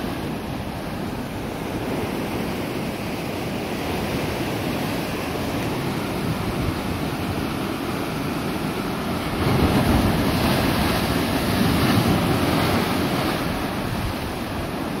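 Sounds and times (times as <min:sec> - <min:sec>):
ocean surf breaking on rocks: 0:00.0 - 0:15.0.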